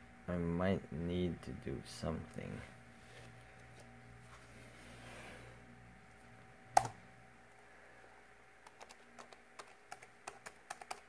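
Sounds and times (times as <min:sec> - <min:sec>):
laptop key press: 0:06.8 - 0:07.0, 0:08.6 - 0:11.0
light keyboard clicks: 0:08.6 - 0:11.0.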